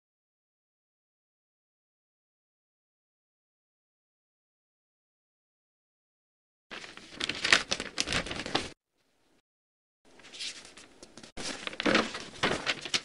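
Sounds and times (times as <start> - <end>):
rustling crinkling noise: 6.7 - 8.8, 10.1 - 13.0.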